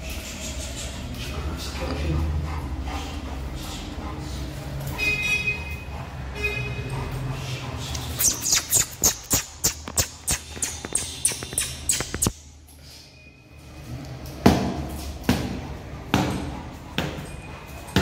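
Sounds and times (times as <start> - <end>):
claws and footsteps on tiles: 7.9 - 12.4.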